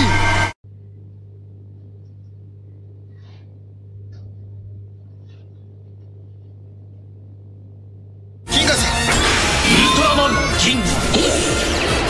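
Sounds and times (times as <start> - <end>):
low electrical hum: 0.0 - 8.5.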